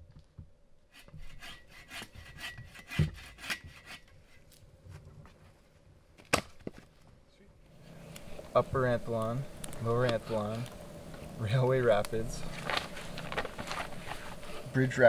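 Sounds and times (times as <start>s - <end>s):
hand saw cutting log: 1.0s - 4.4s.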